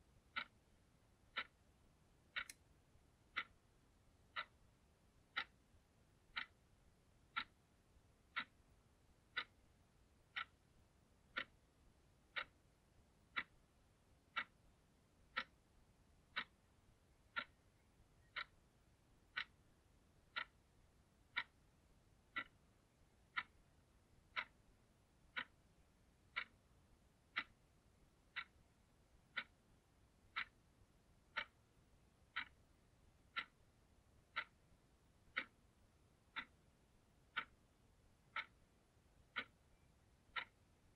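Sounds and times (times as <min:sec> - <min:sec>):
alarm clock ticking: 0:00.3 - 0:00.6, 0:01.3 - 0:01.6, 0:02.3 - 0:02.6, 0:03.3 - 0:03.6, 0:04.3 - 0:04.6, 0:05.3 - 0:05.5, 0:06.3 - 0:06.6, 0:07.3 - 0:07.6, 0:08.3 - 0:08.6, 0:09.3 - 0:09.6, 0:10.3 - 0:10.6, 0:11.3 - 0:11.6, 0:12.3 - 0:12.6, 0:13.3 - 0:13.6, 0:14.3 - 0:14.6, 0:15.3 - 0:15.6, 0:16.3 - 0:16.6, 0:17.3 - 0:17.6, 0:18.2 - 0:18.7, 0:19.3 - 0:19.6, 0:20.2 - 0:20.7, 0:21.3 - 0:21.6, 0:22.3 - 0:24.6, 0:25.3 - 0:26.7, 0:27.3 - 0:27.6, 0:28.2 - 0:30.7, 0:31.3 - 0:38.6, 0:39.3 - 0:40.7.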